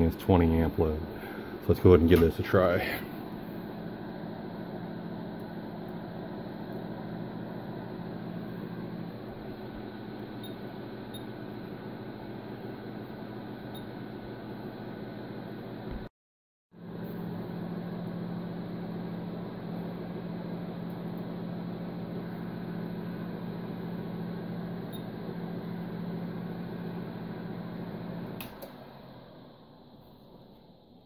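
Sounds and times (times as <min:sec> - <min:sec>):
electrical hum: 0:00.0 - 0:16.1, 0:16.8 - 0:31.0
switch click: 0:28.4 - 0:28.8.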